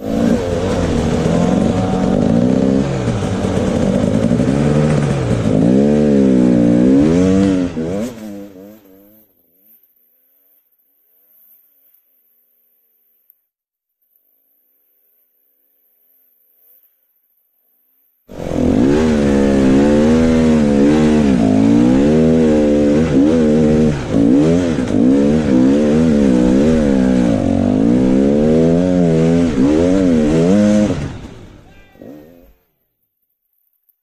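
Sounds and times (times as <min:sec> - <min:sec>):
dirt bike engine revving: 0:00.0 - 0:12.8, 0:18.3 - 0:32.6.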